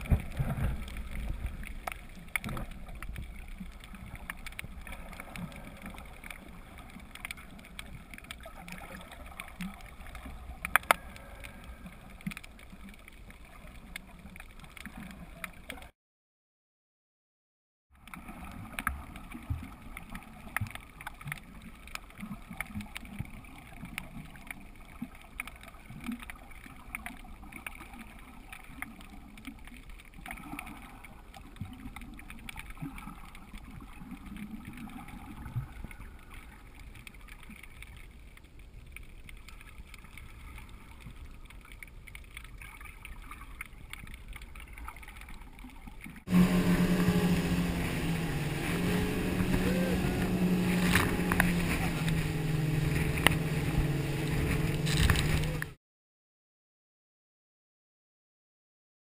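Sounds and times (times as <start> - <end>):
faint underwater clicks: 0.0 - 15.9, 18.0 - 46.3, 46.9 - 55.8
muffled underwater noise: 0.0 - 15.9, 46.3 - 55.8
outboard motor running: 46.3 - 55.8.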